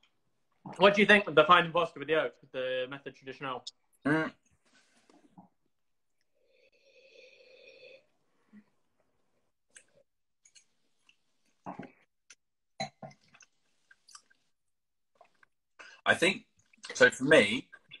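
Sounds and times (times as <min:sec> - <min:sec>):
lip smacks and mouth clicks: 0:13.3 - 0:14.5.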